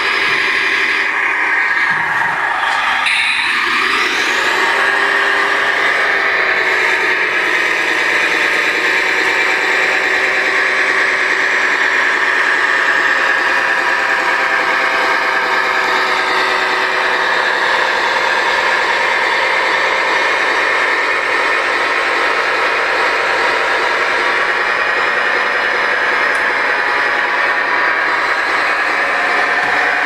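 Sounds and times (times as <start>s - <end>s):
model truck motor humming: 0.0s - 30.0s.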